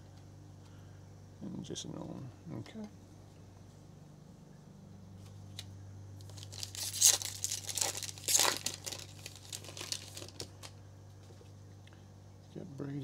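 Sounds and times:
foil wrapper tearing and crinkling: 6.2 - 10.8.

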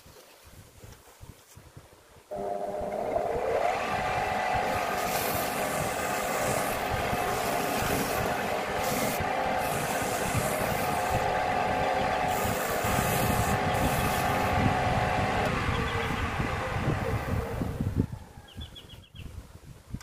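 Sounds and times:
pad rubbing spinning wood: 2.3 - 18.0
wood lathe motor humming: 2.3 - 18.0.

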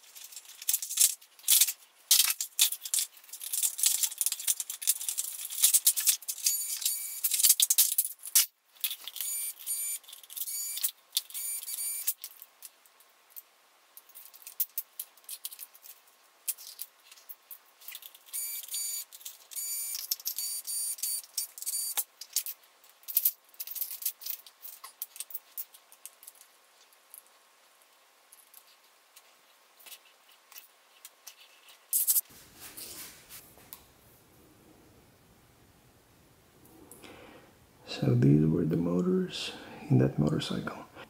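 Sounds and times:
clicking and rattling of plastic parts: 0.0 - 18.4, 19.0 - 27.4, 28.3 - 32.2.

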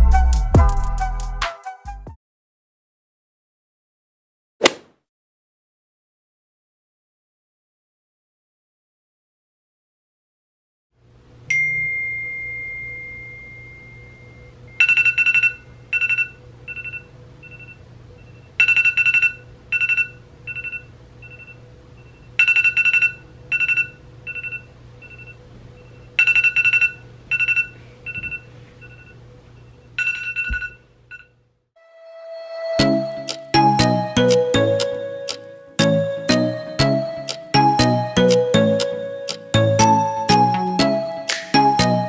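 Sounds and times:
faint steady hum: 11.0 - 18.7
smartphone alarm beeping: 18.6 - 21.6, 26.2 - 29.2.

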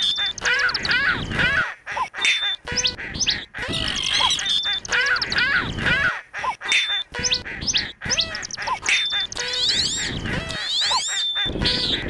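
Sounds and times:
bird chirps and whistles: 0.0 - 0.9, 2.2 - 5.4, 6.7 - 12.0
lower bird calls: 0.0 - 12.0.

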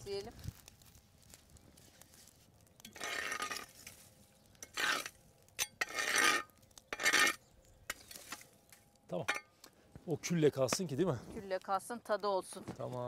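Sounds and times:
rake scraping embers on stone: 0.0 - 12.9
coals clicking: 0.0 - 13.0.

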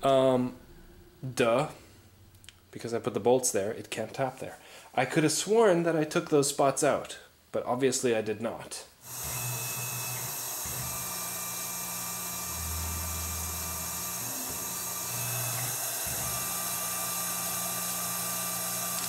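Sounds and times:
mill spindle whirring: 9.1 - 19.0.

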